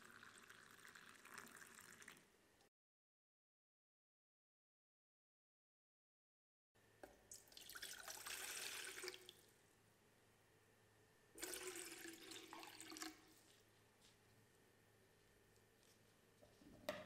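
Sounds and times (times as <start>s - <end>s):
water pouring into metal saucepan: 0.0s - 2.2s, 7.5s - 9.3s, 11.4s - 13.2s.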